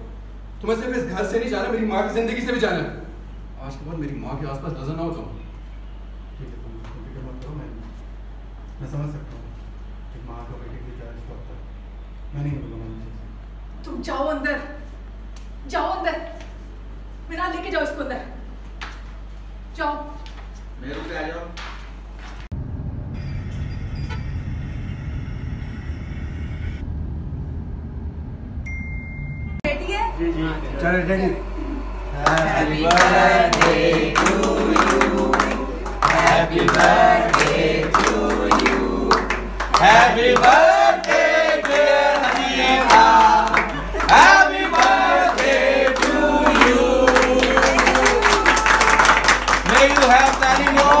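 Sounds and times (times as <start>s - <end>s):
thin high tone: 28.6s - 32.4s
group of people singing: 32.1s - 47.8s
hands clapping: 32.3s - 51.0s.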